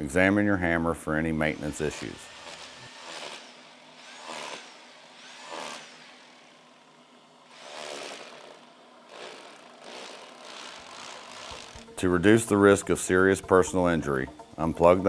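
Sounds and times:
rotary hammer chipping mortar: 0:01.8 - 0:06.0, 0:07.6 - 0:11.9.

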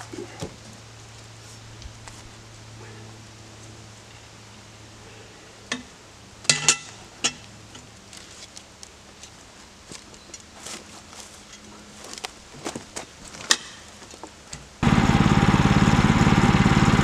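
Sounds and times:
log clanking against steel bed: 0:06.5 - 0:07.9.

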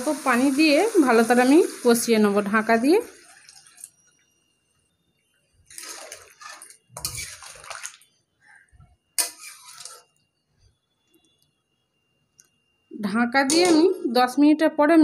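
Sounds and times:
metal spatula scraping wet pan: 0:05.7 - 0:08.0, 0:09.2 - 0:10.2.

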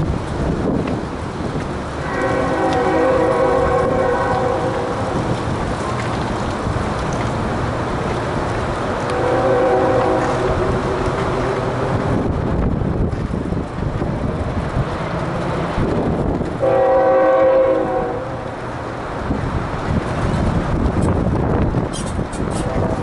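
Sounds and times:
wind and road rumble: 0:00.0 - 0:23.0
multi-note horn chord: 0:09.1 - 0:11.5.

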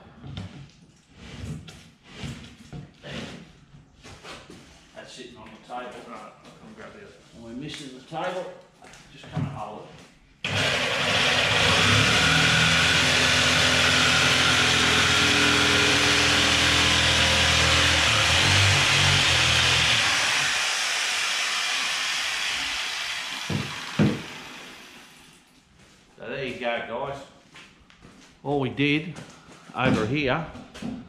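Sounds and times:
electric jigsaw cutting plywood: 0:10.4 - 0:25.4
wood piece knocking: 0:23.4 - 0:24.4.

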